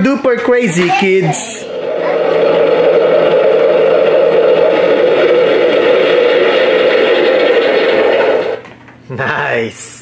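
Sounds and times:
toy tank engine sound effect: 0:01.4 - 0:08.6.

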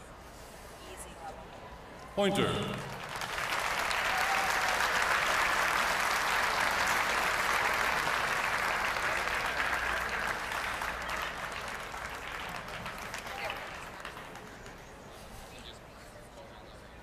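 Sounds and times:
crowd applauding: 0:02.2 - 0:15.0.

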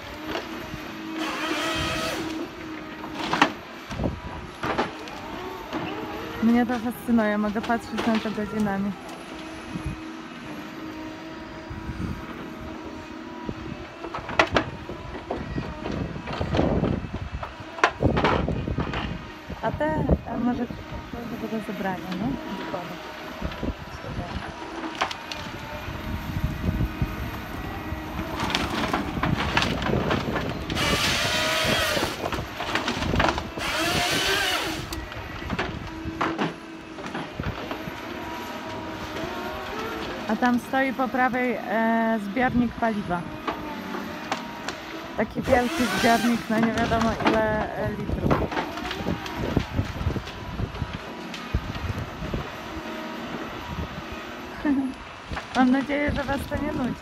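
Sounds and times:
wavering mechanical bursts: 0:00.0 - 0:13.9, 0:18.6 - 0:50.9
harvester engine running: 0:00.0 - 0:57.0
wood cracking and snapping: 0:24.7 - 0:25.6, 0:28.3 - 0:38.5, 0:45.7 - 0:51.9.

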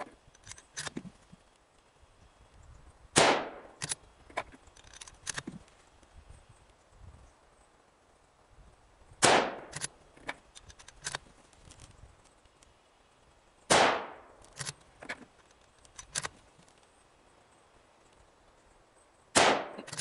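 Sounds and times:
rifle shots echoing: 0:03.2 - 0:03.8, 0:09.2 - 0:09.8, 0:13.7 - 0:14.4, 0:19.3 - 0:19.9
rifle bolt clicks: 0:03.7 - 0:05.5, 0:09.6 - 0:11.2, 0:14.4 - 0:16.4, 0:19.6 - 0:20.0.

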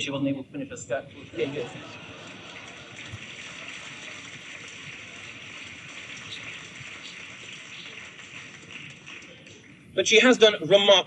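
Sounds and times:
audience applauding: 0:01.2 - 0:09.8.

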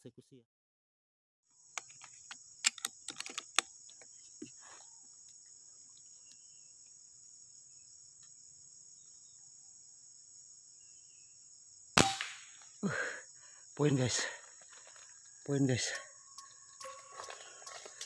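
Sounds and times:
insects droning: 0:01.5 - 0:18.0
sharp clicks: 0:01.8 - 0:03.7.

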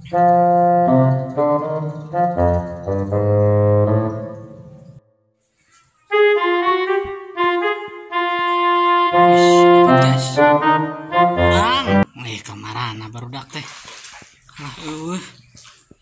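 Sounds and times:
instrumental background music: 0:00.0 - 0:05.1, 0:06.1 - 0:12.0.

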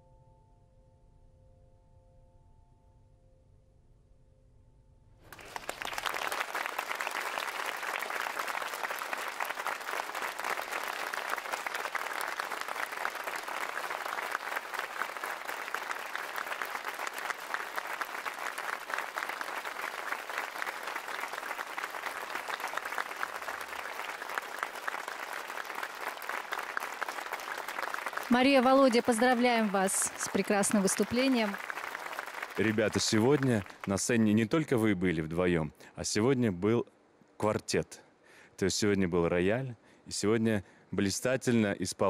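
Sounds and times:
audience applause: 0:05.3 - 0:34.4.

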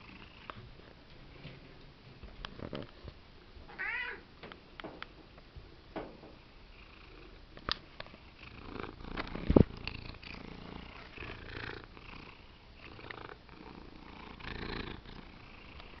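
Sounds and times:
cat purring: 0:06.7 - 0:16.0.

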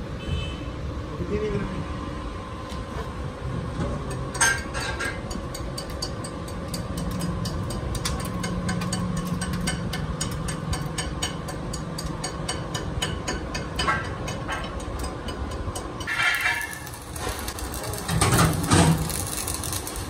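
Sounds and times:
hammer tapping on metal: 0:04.1 - 0:16.6.

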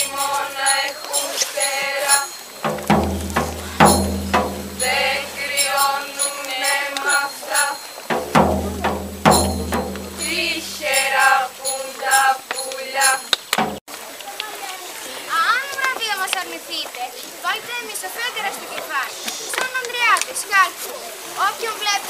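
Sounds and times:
drum and tambourine strikes: 0:02.1 - 0:13.8.

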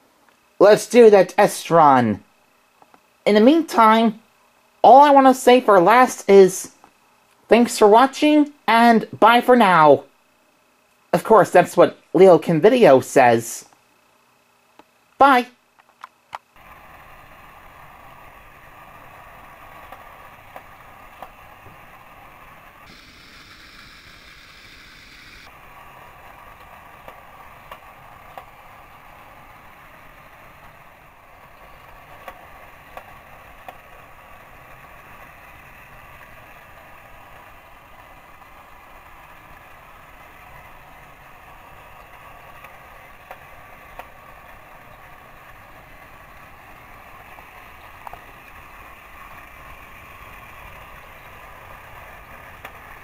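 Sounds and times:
toy train motor whirring: 0:15.8 - 0:53.0.

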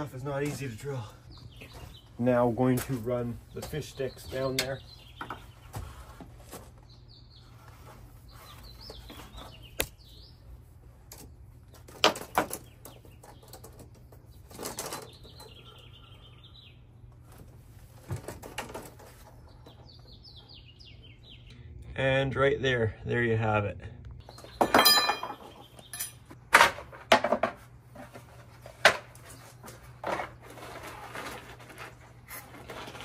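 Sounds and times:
small birds chirping: 0:00.0 - 0:18.2, 0:18.8 - 0:23.2, 0:24.1 - 0:26.5
scrapes and knocks on wood: 0:26.5 - 0:33.0.

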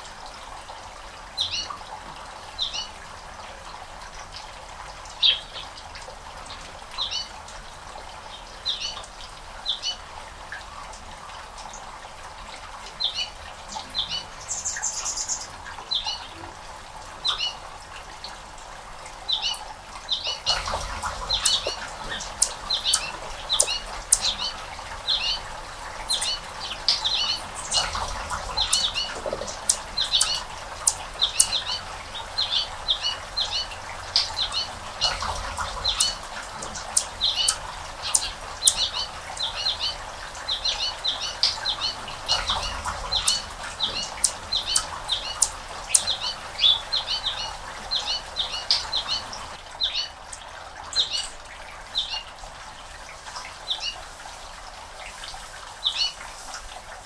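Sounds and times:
small birds chirping: 0:13.0 - 0:16.5, 0:19.3 - 0:50.2.

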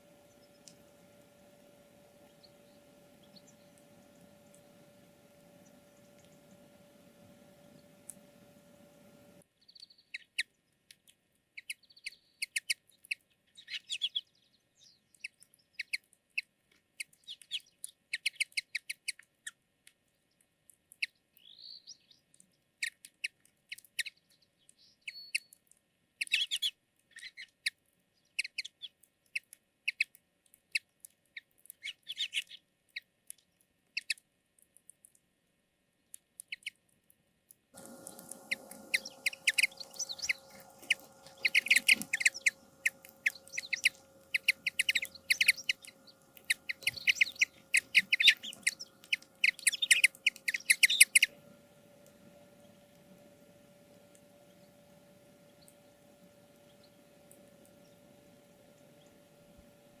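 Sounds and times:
louder hum and background noise: 0:00.0 - 0:09.4, 0:37.8 - 1:00.0
faint steady hum: 0:00.0 - 0:09.7, 0:29.0 - 1:00.0
birds chirping and twittering: 0:00.0 - 0:10.8, 0:11.6 - 0:16.1, 0:21.0 - 0:29.1, 0:31.4 - 0:34.2, 0:37.8 - 1:00.0.

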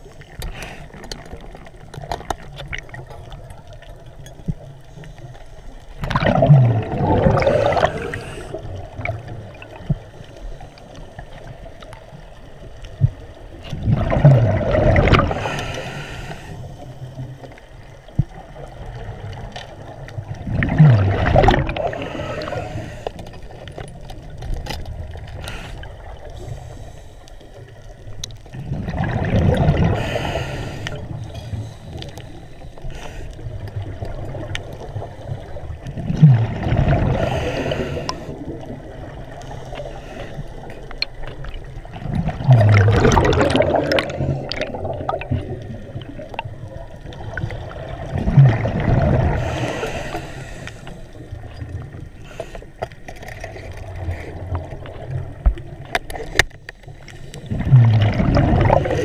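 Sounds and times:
underwater water noise: 0:00.0 - 0:59.0
diver exhaling bubbles underwater: 0:06.0 - 0:10.0, 0:13.7 - 0:16.1, 0:20.3 - 0:23.0, 0:28.6 - 0:31.6, 0:35.9 - 0:39.2, 0:41.8 - 0:50.4, 0:57.4 - 0:59.0.

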